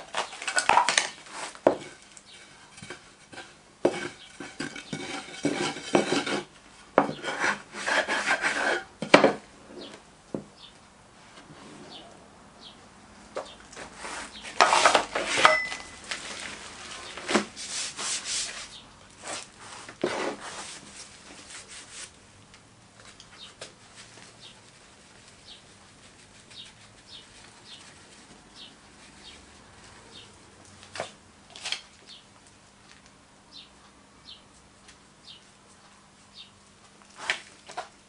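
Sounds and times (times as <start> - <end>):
sand scraping across a board: 1.3 - 6.5, 7.1 - 8.9, 13.8 - 15.5, 17.0 - 22.1.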